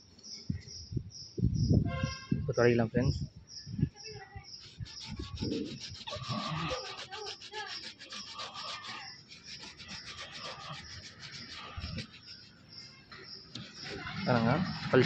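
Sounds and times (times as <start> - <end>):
cloth rag rubbing metal emblem: 4.8 - 12.5.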